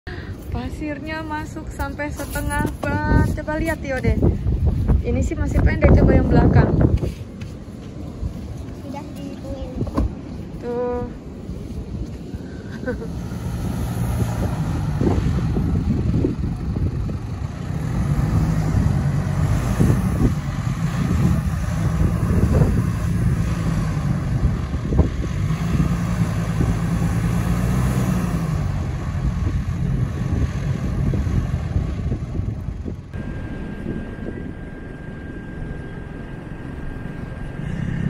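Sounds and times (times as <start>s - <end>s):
engine revving: 12.8s - 38.0s.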